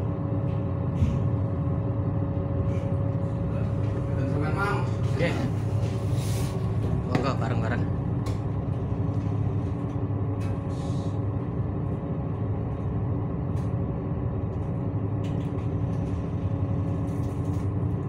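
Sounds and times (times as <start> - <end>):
ship engine droning: 0.0 - 18.0.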